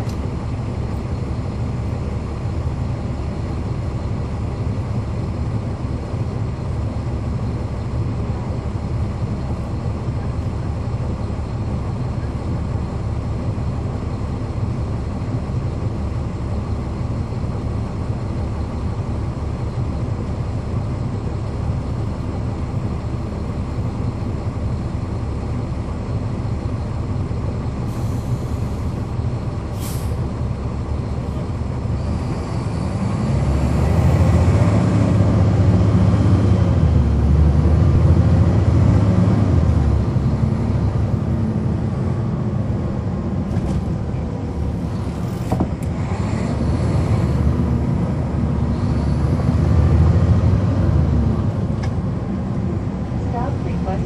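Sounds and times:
bus diesel engine rumbling: 0.0s - 54.0s.

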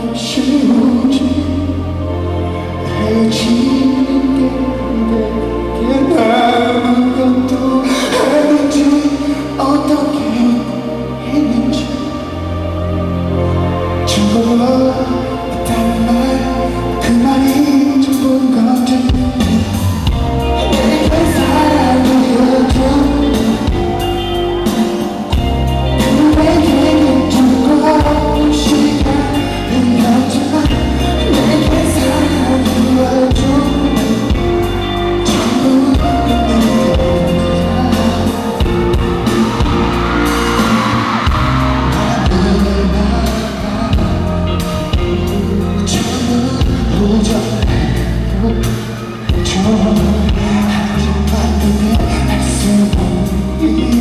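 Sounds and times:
backing music with heavy bass: 0.0s - 54.0s
man singing into a microphone: 0.0s - 54.0s
steady drum beat: 19.1s - 48.2s.

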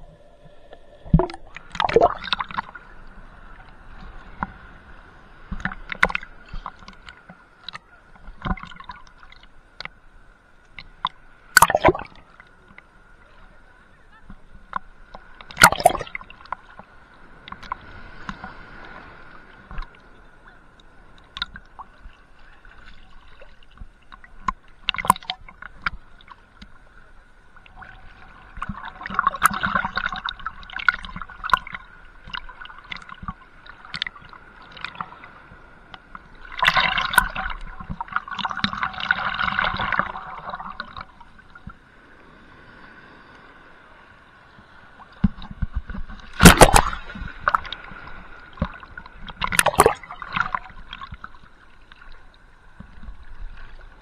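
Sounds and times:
seawater sloshing and gurgling: 0.0s - 9.6s, 10.8s - 12.8s, 14.1s - 20.5s, 21.1s - 42.5s, 44.6s - 54.0s
churning water: 0.0s - 10.0s, 10.7s - 42.4s, 44.5s - 54.0s
water tapping on camera: 0.7s - 2.7s, 5.5s - 10.0s, 10.7s - 12.8s, 14.2s - 18.6s, 21.2s - 21.9s, 23.7s - 26.8s, 28.6s - 35.1s, 45.2s - 47.8s, 48.5s - 52.0s.

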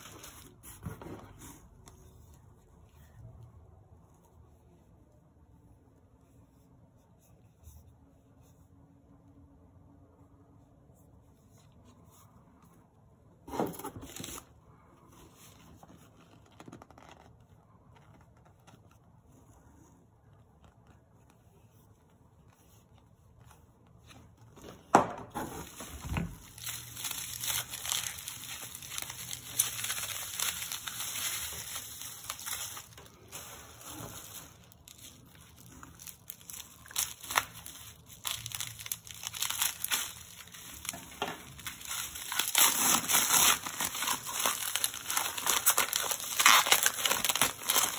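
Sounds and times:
bubble wrap crinkling and tearing: 0.0s - 1.0s, 14.0s - 19.1s, 25.4s - 47.9s.

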